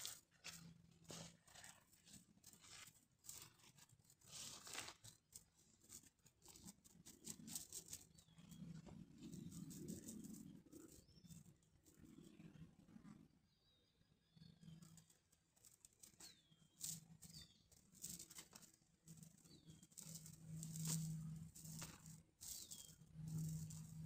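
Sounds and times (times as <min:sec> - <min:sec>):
net rustling in hands: 0:00.0 - 0:11.5, 0:15.6 - 0:24.0.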